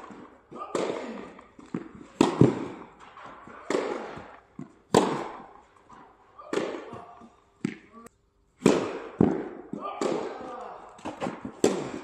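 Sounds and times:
tennis racket hitting ball: 0.0 - 5.5, 6.4 - 7.9, 8.6 - 12.0
tennis ball bouncing: 0.1 - 5.5, 6.5 - 7.9.

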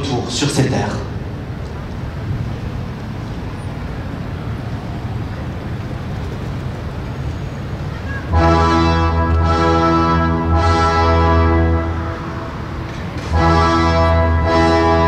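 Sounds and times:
distant traffic rumble: 0.0 - 15.0
brass band chord: 8.3 - 15.0.

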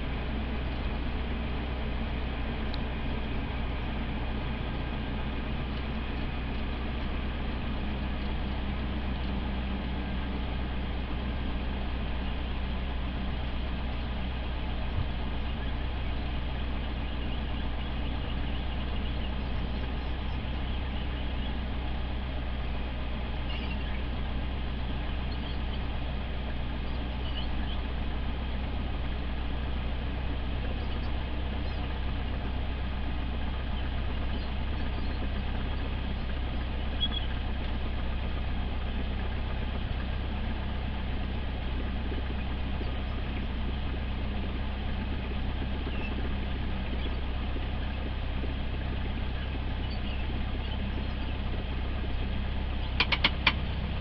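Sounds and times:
propeller aircraft engine droning: 0.0 - 54.0
sharp clicks: 52.9 - 53.6.

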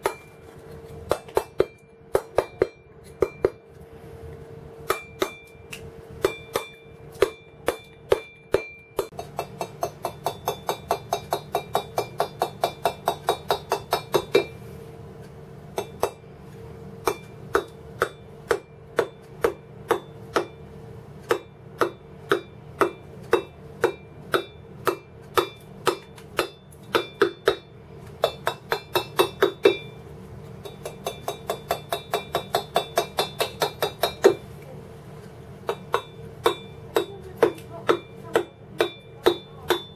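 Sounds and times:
mallet striking chisel into stone: 0.0 - 0.4, 1.1 - 3.6, 4.8 - 14.6, 15.8 - 16.2, 17.0 - 20.6, 21.2 - 30.0, 30.6 - 34.4, 35.6 - 39.9.

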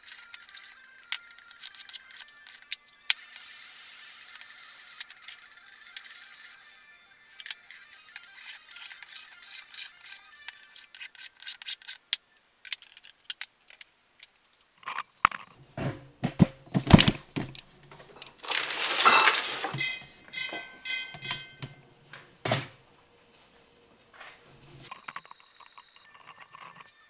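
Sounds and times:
wood and tools knocking and clattering: 15.3 - 22.8.

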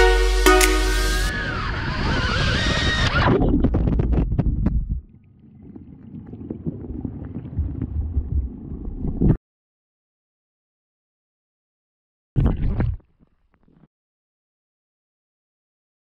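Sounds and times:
wind rush on microphone: 1.3 - 9.4
muffled underwater rumble: 3.3 - 9.4.

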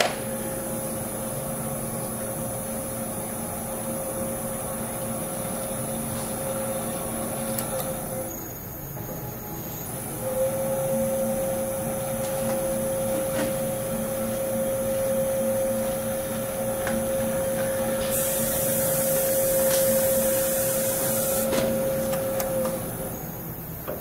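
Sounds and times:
hiss: 18.0 - 21.6.

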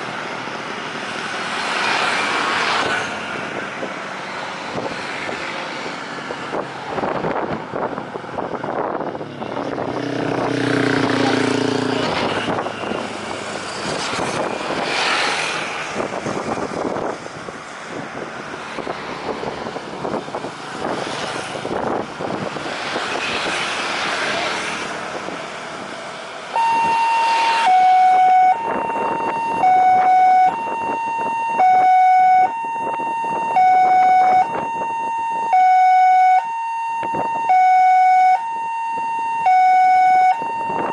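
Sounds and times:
road traffic passing: 0.0 - 40.9
two-tone emergency siren: 26.5 - 40.9.

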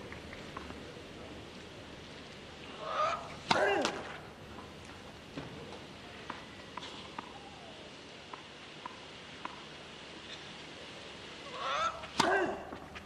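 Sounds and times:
tennis ball bouncing on clay: 8.3 - 9.7.

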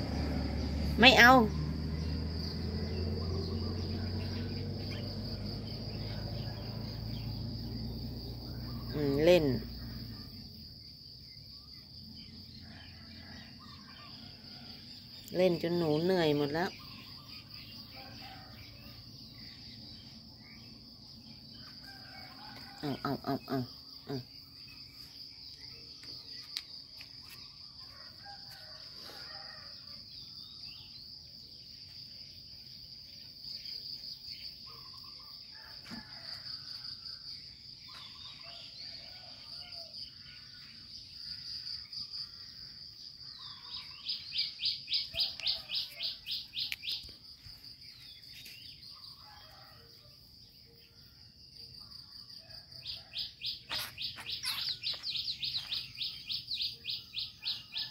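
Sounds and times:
insects droning: 0.0 - 57.9
rapid bird chirping: 52.9 - 57.9.

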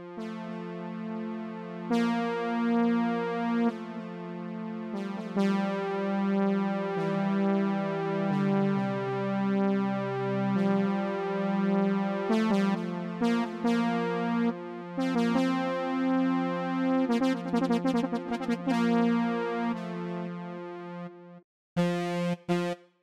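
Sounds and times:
synth brass chords: 12.3 - 21.1, 21.8 - 22.8.

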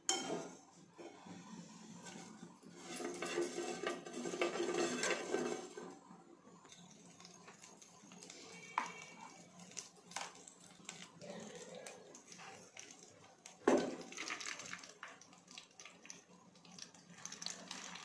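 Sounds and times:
steel spoon scraping a pan: 0.1 - 6.0
seeds sizzling in oil: 1.1 - 18.0.

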